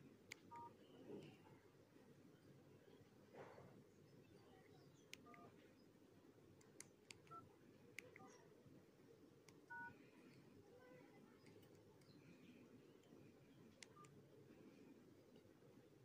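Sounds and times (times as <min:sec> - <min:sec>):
phone keypad beeps: 0:00.5 - 0:00.8, 0:05.1 - 0:05.5, 0:07.2 - 0:07.5, 0:09.7 - 0:10.0, 0:13.8 - 0:14.2.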